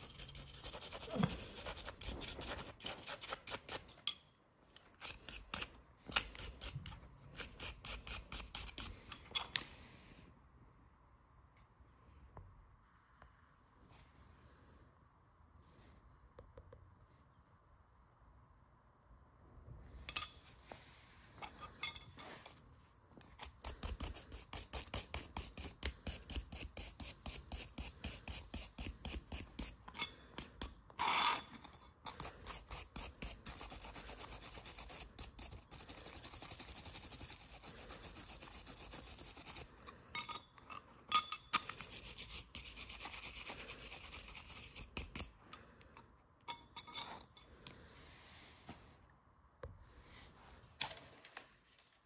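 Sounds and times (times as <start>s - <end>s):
wire brush scrubbing metal: 0.0s - 3.9s, 4.8s - 9.2s, 31.0s - 40.4s.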